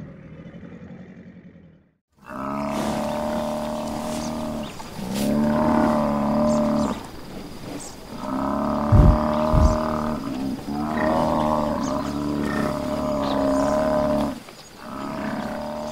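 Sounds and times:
buffalo bellowing: 2.2 - 15.9.

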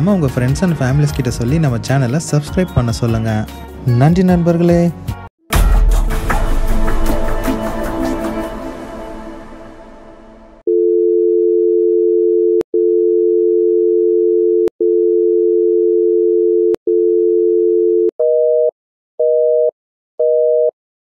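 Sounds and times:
telephone dial tone: 10.7 - 20.7.

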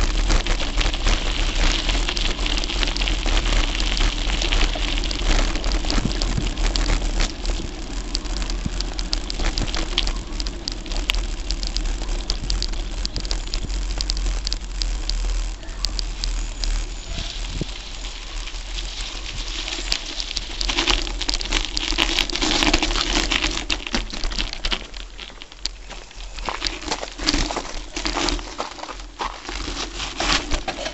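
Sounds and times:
bike tyres crunching on gravel: 0.0 - 30.9
low rumble of vibration and wind: 0.0 - 30.9.

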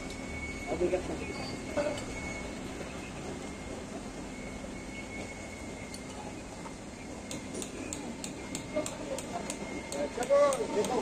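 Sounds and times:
workshop background noise: 0.0 - 11.0
hammer tapping on metal punch: 7.3 - 11.0.

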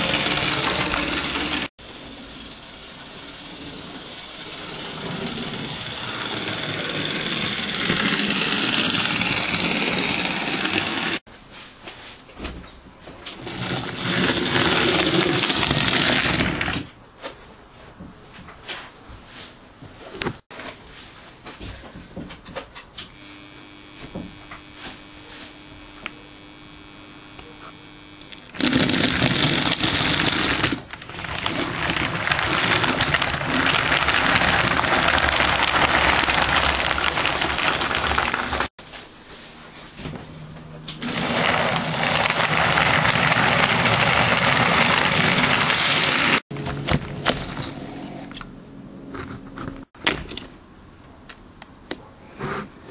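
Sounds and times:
model train electric motor whirring: 0.0 - 11.2, 13.4 - 16.7, 23.0 - 38.7, 41.0 - 46.4.

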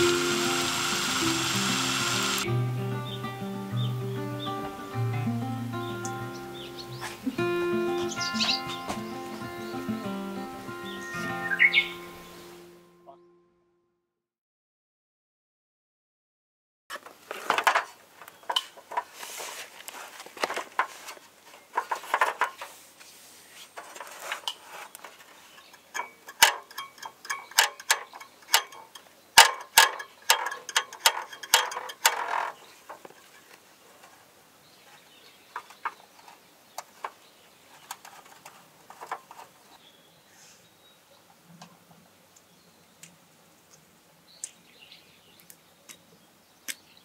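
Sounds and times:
small plastic parts clicking: 0.0 - 2.5, 24.2 - 33.6.

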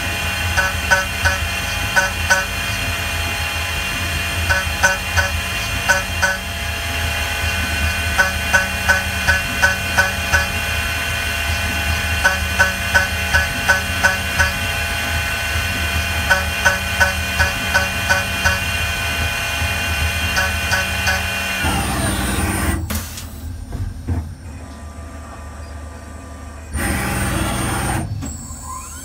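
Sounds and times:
spindle whine: 0.0 - 22.4
sharp cutter ticks: 0.6 - 2.6, 4.5 - 6.5, 8.2 - 10.6, 12.2 - 14.7, 16.3 - 18.7, 20.4 - 21.3.

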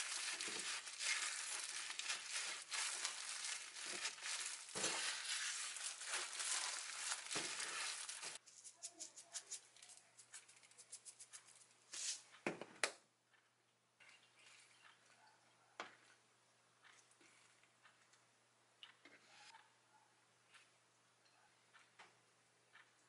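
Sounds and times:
plastic gloves crinkling: 0.0 - 12.2.

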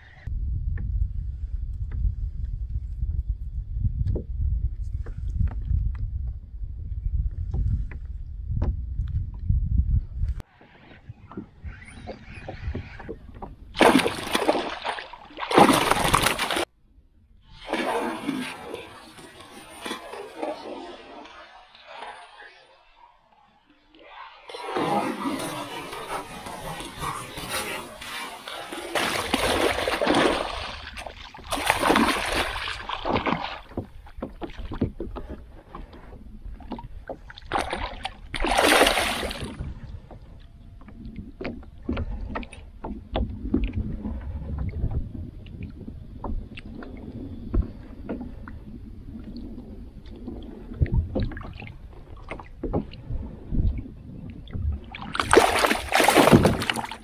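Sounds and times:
quiet water sounds: 0.0 - 57.0
fish splashing at water surface: 13.8 - 16.7, 55.1 - 57.0.

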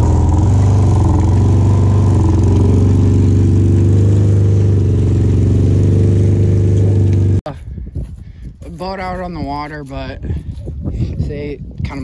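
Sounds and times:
vehicle engine idling: 0.0 - 7.4.

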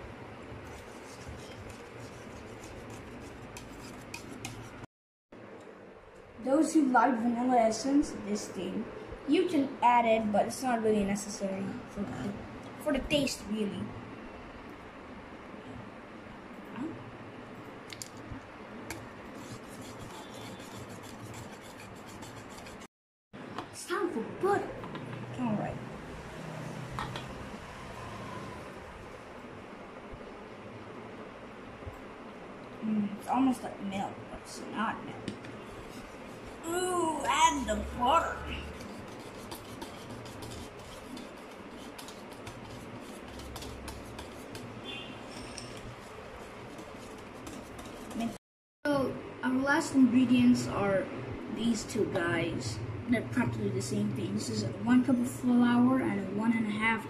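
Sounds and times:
soft stirring noise: 0.0 - 4.9, 17.8 - 22.9, 34.0 - 48.4
whisk beating batter in bowl: 0.6 - 4.9, 19.3 - 22.9, 38.5 - 48.4
whisk clicking against bowl: 38.8 - 44.7.

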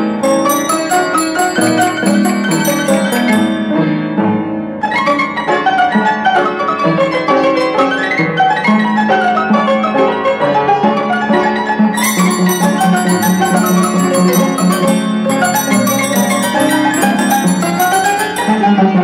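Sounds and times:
barrel piano playing: 0.0 - 19.0
bright jingling top line: 0.2 - 3.9, 12.0 - 19.0.

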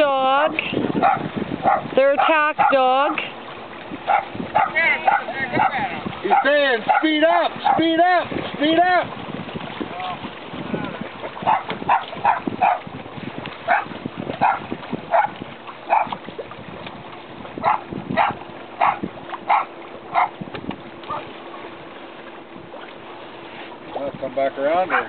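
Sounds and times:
small dog barking: 1.0 - 2.8, 4.1 - 7.8, 11.4 - 12.8, 13.7 - 16.1, 17.6 - 20.3.

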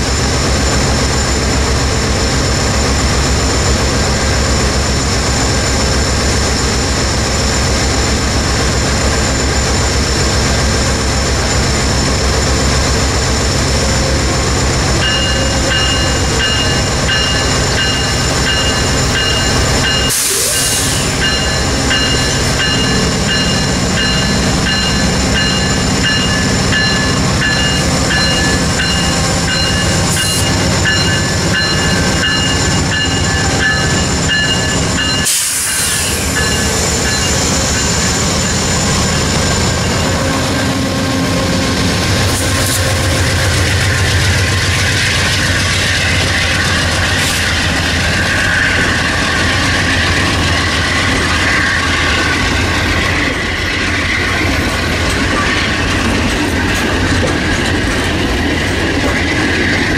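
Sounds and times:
diesel locomotive engine rumble: 0.0 - 59.9
steady high tone: 13.5 - 54.3.

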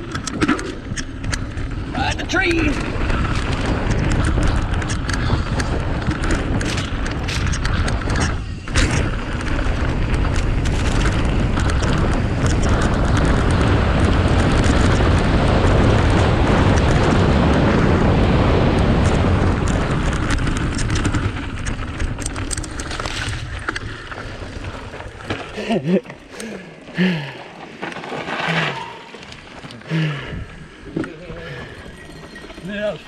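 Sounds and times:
wind buffeting microphone: 0.0 - 25.5
bike rattling and knocking: 0.0 - 33.0.

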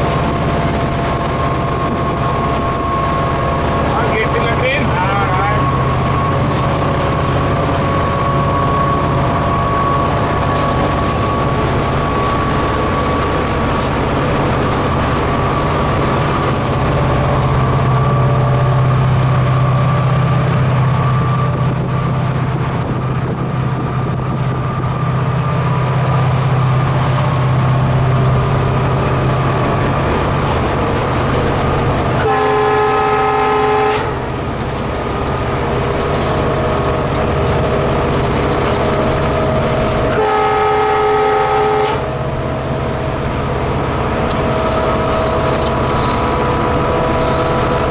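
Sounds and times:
locomotive engine drone: 0.0 - 47.9
locomotive horn blast: 32.1 - 34.3, 40.0 - 42.4.

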